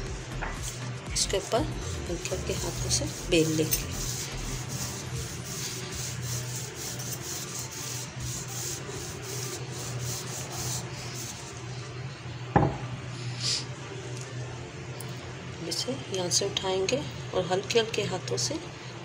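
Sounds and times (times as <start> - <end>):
rolling pin rubbing over dough: 0.6 - 12.1
single knock: 12.6 - 12.8.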